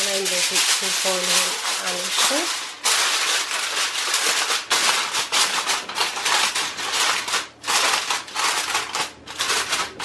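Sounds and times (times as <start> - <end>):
aluminium foil crinkling: 0.0 - 10.0.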